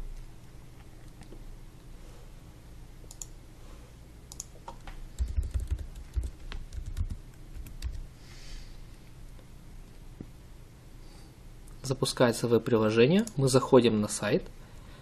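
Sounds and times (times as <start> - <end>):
keyboard typing: 4.3 - 8.0.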